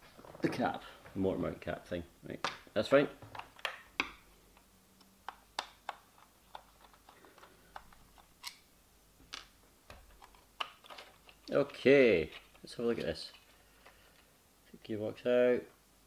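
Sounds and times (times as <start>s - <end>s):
plastic parts clicking: 3.3s - 8.6s, 9.3s - 14.3s.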